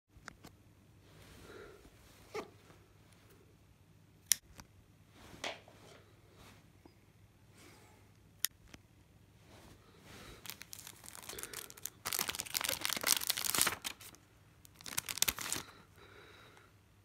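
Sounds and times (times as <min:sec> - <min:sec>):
plastic sleeve crinkling: 0:10.2 - 0:15.8.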